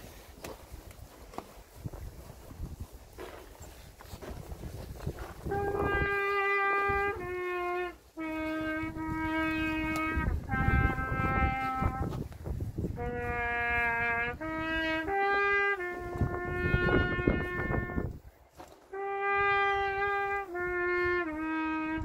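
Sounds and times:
solo trumpet slow melody: 4.8 - 22.0.

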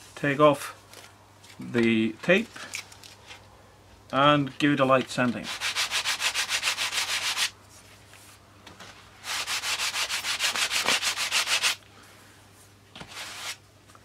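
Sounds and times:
sandpaper rubbing on balsa: 5.4 - 7.6, 9.2 - 11.8, 13.1 - 13.6.

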